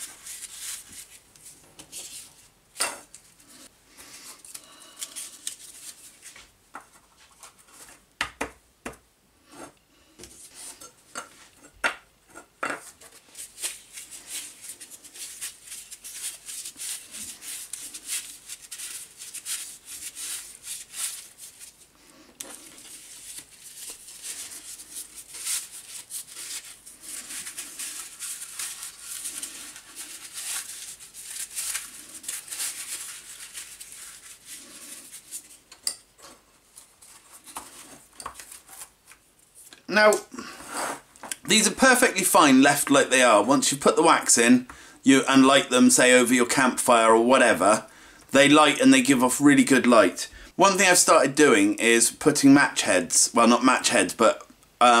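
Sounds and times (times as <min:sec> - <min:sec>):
cardboard rustling and scraping: 0:36.2 - 0:39.2.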